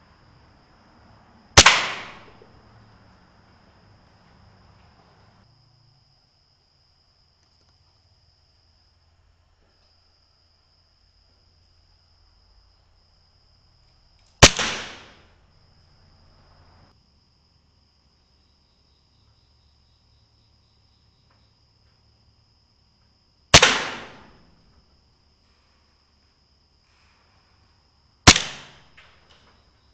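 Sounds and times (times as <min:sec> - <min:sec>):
air rifle shots: 0:01.6 - 0:02.5, 0:14.4 - 0:15.3, 0:23.5 - 0:24.6, 0:28.3 - 0:29.2.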